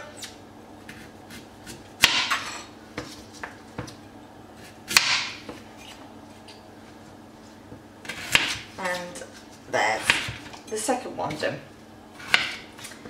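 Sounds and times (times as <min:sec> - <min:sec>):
knife chopping onto stone board: 0:01.3 - 0:03.1, 0:04.9 - 0:05.6.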